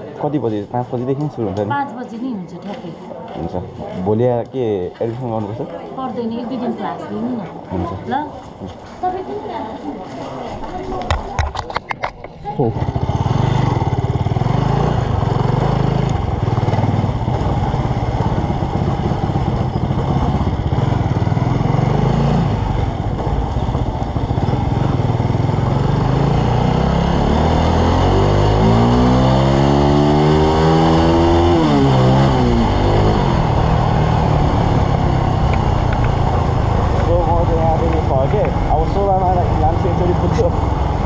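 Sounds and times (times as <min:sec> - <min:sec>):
motorcycle engine running: 0:12.4 - 0:41.0.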